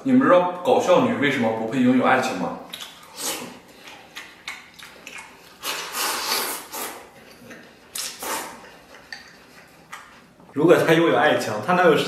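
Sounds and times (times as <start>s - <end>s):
man chewing and lip smacking: 2.7s - 10.6s.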